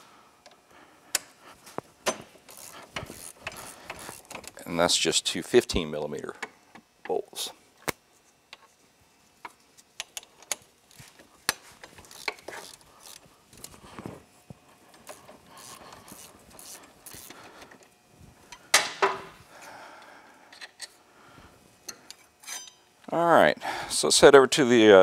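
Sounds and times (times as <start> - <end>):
socket ratchet clicking: 2.1 - 4.6, 12.0 - 13.2.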